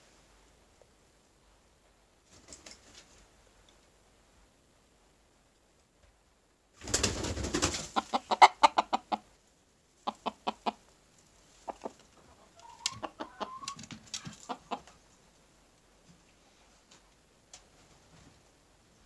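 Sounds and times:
chicken clucking: 0:07.7 - 0:09.4, 0:10.0 - 0:15.1.

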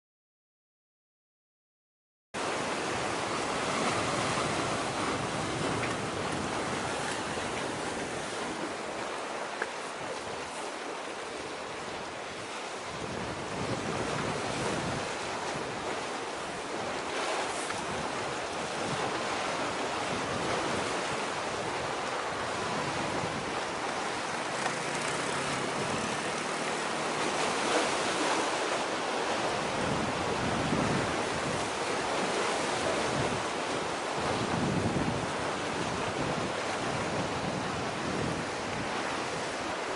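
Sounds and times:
sea surf: 0:02.4 - 0:39.9
wind buffeting microphone: 0:02.5 - 0:09.4, 0:11.3 - 0:39.9.

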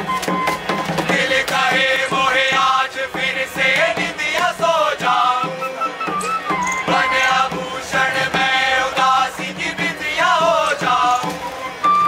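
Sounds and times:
sharp percussive strikes: 0:00.0 - 0:11.4
chorus chanting in unison: 0:00.6 - 0:11.8.

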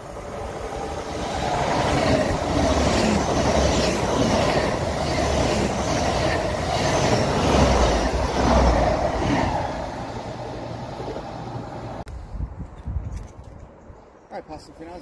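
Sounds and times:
train passing at speed: 0:00.0 - 0:12.1.

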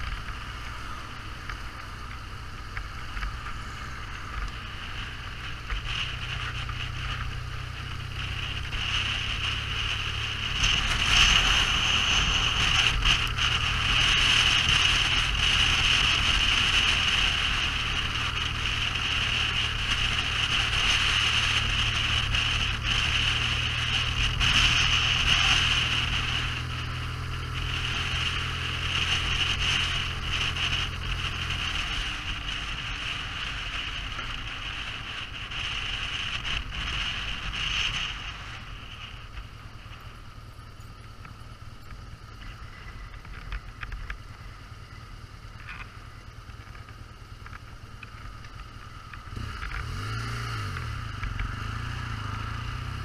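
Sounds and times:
vehicle engine humming: 0:00.0 - 0:53.0
rushing wind noise: 0:02.3 - 0:41.2.

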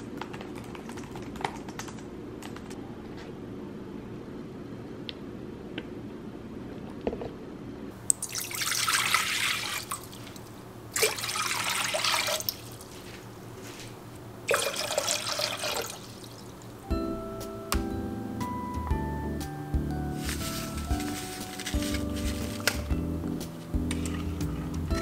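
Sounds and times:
water pouring into metal pot: 0:08.2 - 0:10.0.

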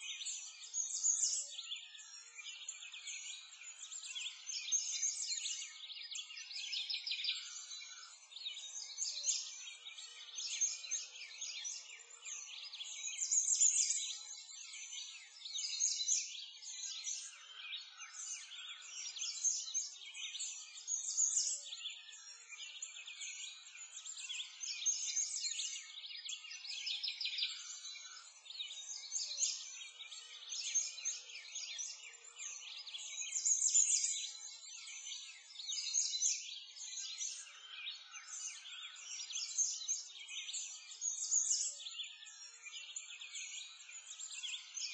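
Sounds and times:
small birds chirping and twittering: 0:00.0 - 0:44.9.

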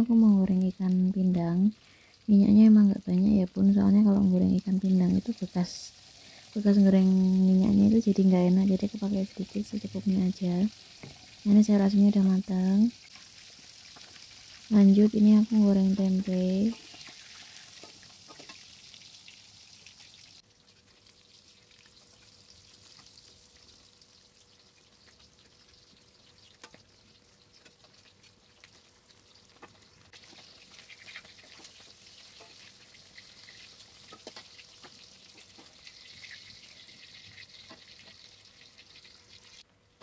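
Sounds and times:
food sizzling in hot oil: 0:00.0 - 0:39.7.

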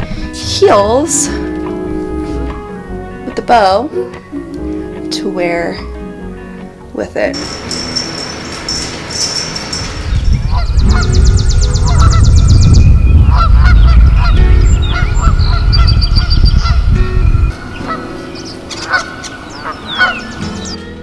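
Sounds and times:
wind buffeting microphone: 0:07.4 - 0:20.2
high bird trill: 0:07.4 - 0:20.8
geese honking: 0:17.7 - 0:20.4.

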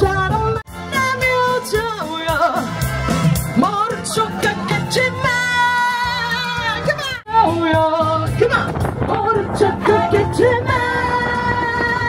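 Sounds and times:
backing music: 0:00.0 - 0:12.0
person singing: 0:03.6 - 0:12.0.

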